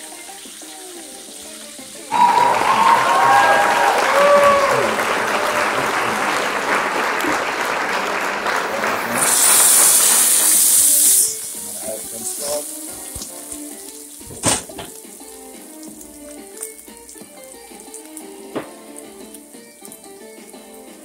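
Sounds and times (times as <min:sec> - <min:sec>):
food sizzling in frying pan: 0:00.0 - 0:04.4, 0:09.1 - 0:21.0
faint background music: 0:00.0 - 0:04.9, 0:10.8 - 0:21.0.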